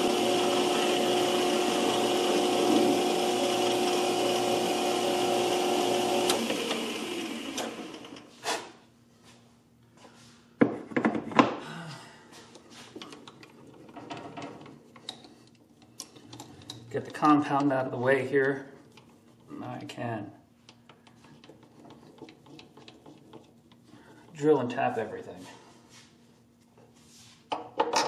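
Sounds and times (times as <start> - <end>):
metal lathe running: 0.0 - 8.2.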